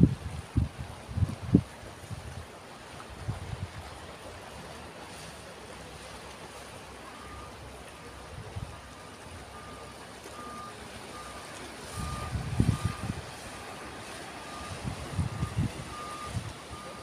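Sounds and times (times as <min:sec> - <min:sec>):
reversing alarm beeping: 0:07.1 - 0:07.6, 0:08.6 - 0:17.0.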